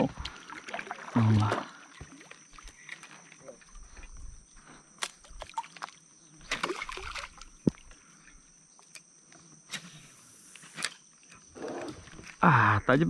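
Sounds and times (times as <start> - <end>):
fishing lure splashing on water: 5.0 - 7.9.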